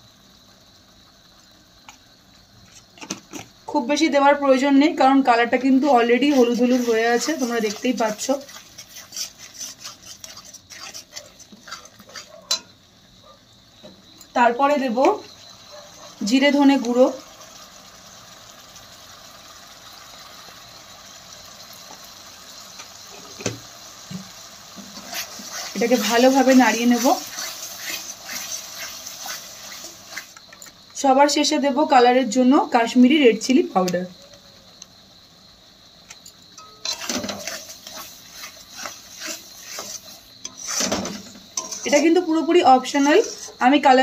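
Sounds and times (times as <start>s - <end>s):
paste sizzling in hot oil: 0.0s - 31.1s, 35.0s - 44.0s
metal spatula scraping paste: 6.3s - 12.6s, 25.0s - 30.4s, 36.6s - 42.2s, 42.8s - 43.6s.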